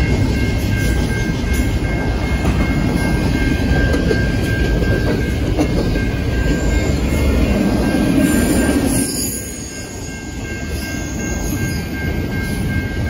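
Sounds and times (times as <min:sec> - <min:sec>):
clickety-clack over rail joints: 0:00.0 - 0:08.1
train wheels rumbling on rail: 0:00.0 - 0:13.0.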